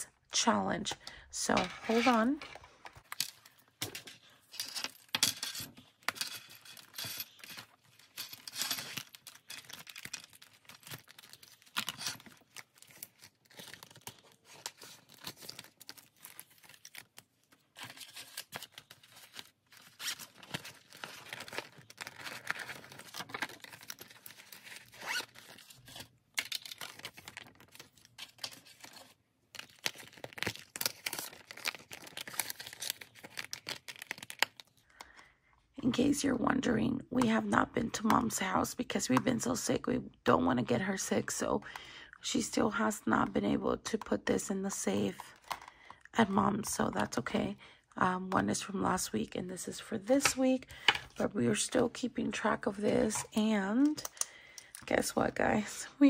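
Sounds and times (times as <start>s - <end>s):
banknotes and plastic rustling: 0.8s - 35.3s.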